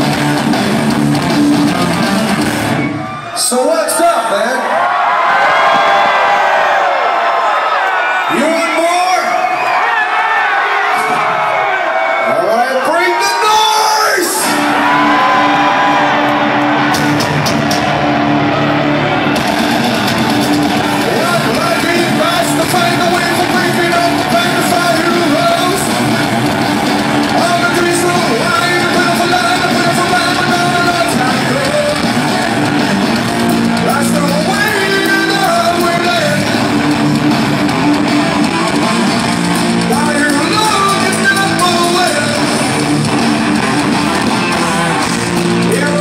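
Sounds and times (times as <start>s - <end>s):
heavy rock band playing: 0.0s - 4.4s, 14.2s - 46.0s.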